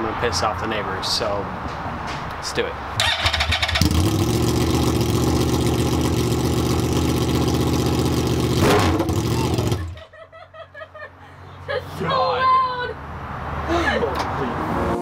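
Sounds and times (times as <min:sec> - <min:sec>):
motorcycle engine revving loud: 0:03.0 - 0:10.0.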